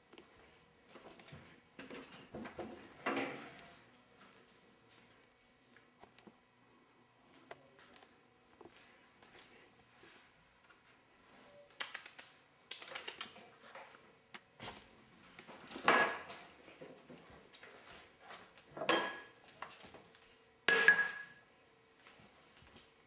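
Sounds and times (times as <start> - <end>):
dishes clinking on wooden table: 15.8 - 16.3, 18.8 - 19.4, 20.7 - 21.4.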